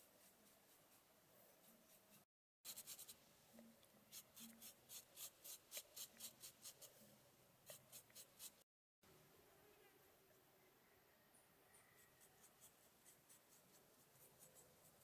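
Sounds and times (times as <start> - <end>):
scratchy brush strokes on clay: 0.0 - 8.6, 11.7 - 15.0.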